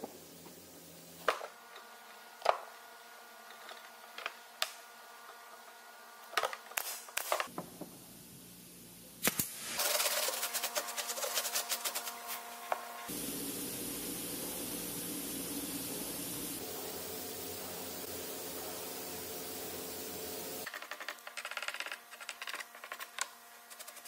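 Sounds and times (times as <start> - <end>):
gloved hand rubbing wood: 9.8 - 12.6.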